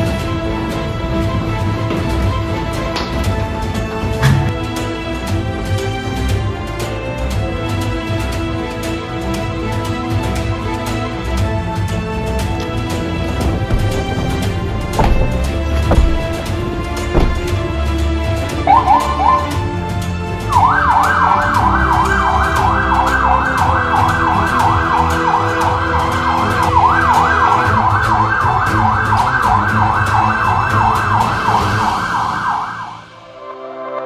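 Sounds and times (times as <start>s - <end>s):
background music: 0.0s - 34.0s
electronic siren yelping: 18.6s - 19.6s, 20.5s - 33.1s.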